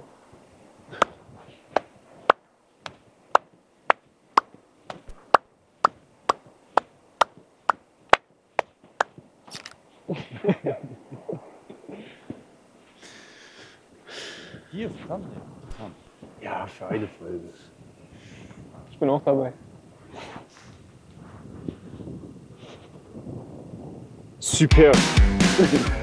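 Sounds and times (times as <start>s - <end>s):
hand claps and slaps: 1.8s - 9.7s.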